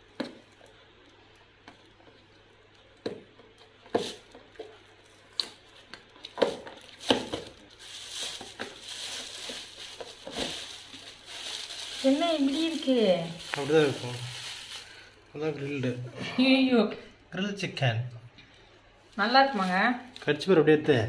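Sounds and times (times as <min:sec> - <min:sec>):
plastic bag crinkling: 0:05.0 - 0:16.1.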